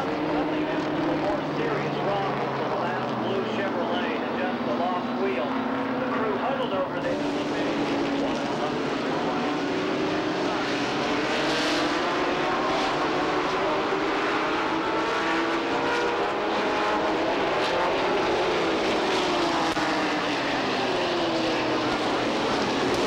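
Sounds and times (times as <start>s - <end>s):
stock cars racing past: 0.0s - 23.0s.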